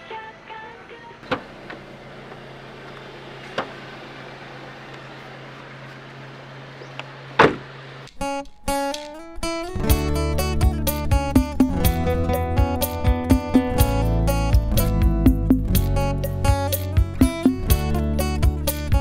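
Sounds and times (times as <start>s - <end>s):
acoustic guitar music: 8.2s - 19.0s.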